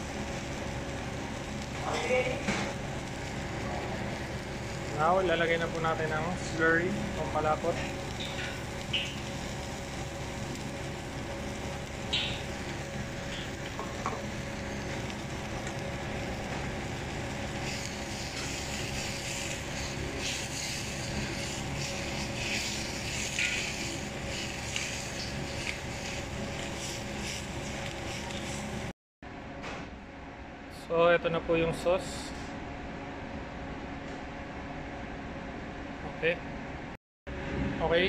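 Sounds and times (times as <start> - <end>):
steady hum: 0.0 - 38.0
sauce bubbling in a frying pan: 7.8 - 28.9.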